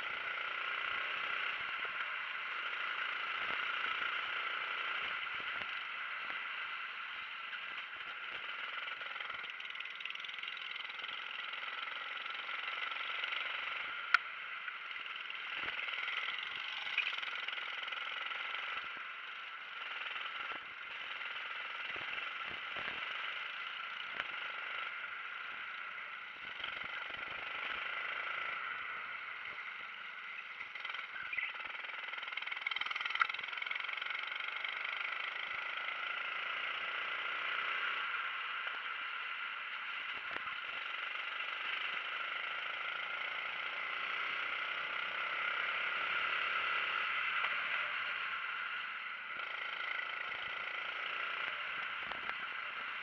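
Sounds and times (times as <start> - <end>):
kart engine running: 0.0 - 53.0.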